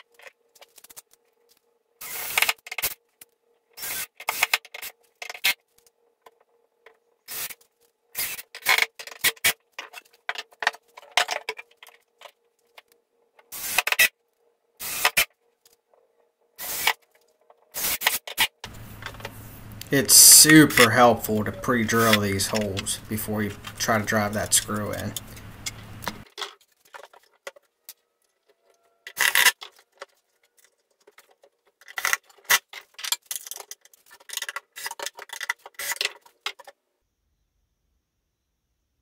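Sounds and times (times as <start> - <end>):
cordless drill bursts: 2.0 - 2.4, 3.8 - 4.5, 7.3 - 7.5, 13.5 - 13.8, 14.8 - 15.2, 16.6 - 16.9
faint steady hum: 18.6 - 26.2.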